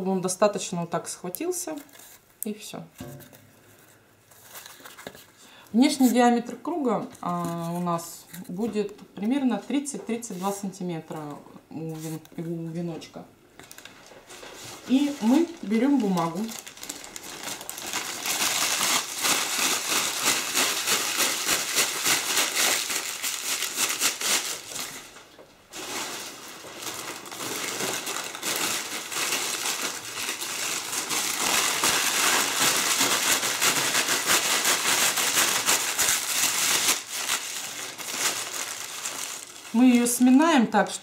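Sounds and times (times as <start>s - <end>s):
paper crumpling: 13.6s - 40.1s.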